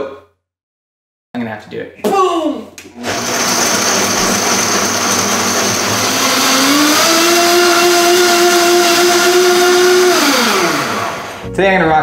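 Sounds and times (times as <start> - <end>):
blender running: 3.0 - 11.4.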